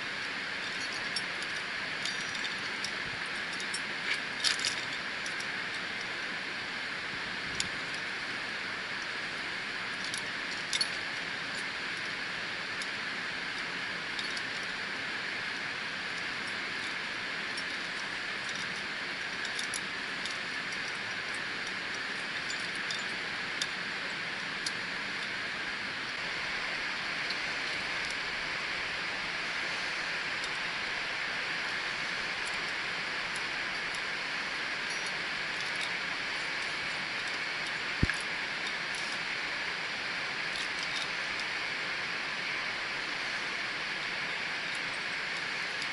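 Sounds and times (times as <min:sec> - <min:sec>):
carabiners clinking: 0:00.0 - 0:05.8, 0:16.1 - 0:25.5, 0:31.6 - 0:39.7, 0:40.4 - 0:41.6
steady hiss: 0:00.0 - 0:45.9.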